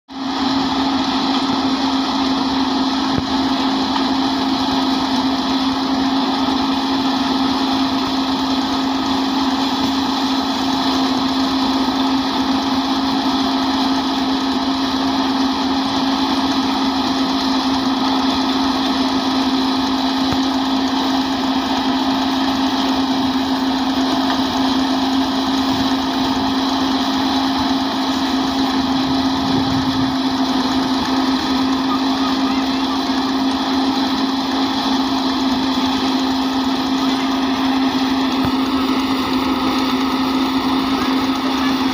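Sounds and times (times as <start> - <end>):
thresher mechanical drone: 0.1 - 41.9.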